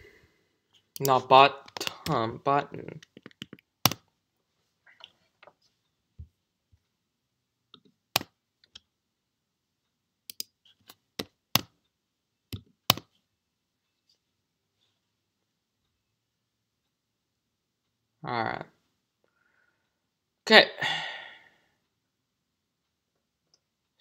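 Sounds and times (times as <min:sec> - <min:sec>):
keyboard and mouse clicks: 0:02.9 - 0:04.1, 0:07.7 - 0:08.9, 0:10.3 - 0:11.8, 0:12.5 - 0:13.2.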